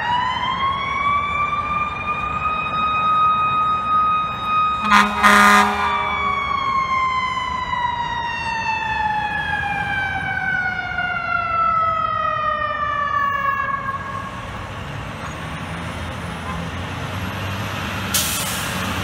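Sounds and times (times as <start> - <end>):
mechanical siren winding down: 0.0 - 14.3
truck engine rumble: 0.1 - 19.0.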